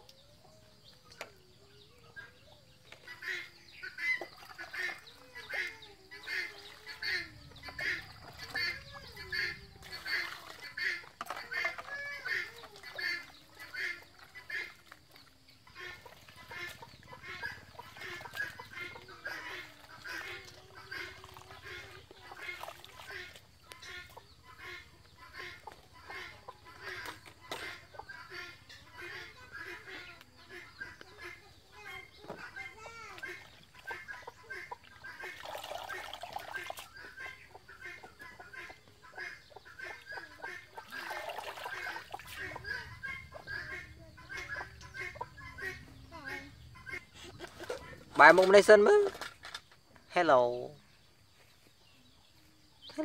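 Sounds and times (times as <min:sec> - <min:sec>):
chickens clucking: 0:00.0 - 0:53.0
splashing in a metal bowl: 0:03.1 - 0:24.1, 0:33.2 - 0:37.8, 0:39.8 - 0:42.8
fowl calling: 0:15.7 - 0:49.2.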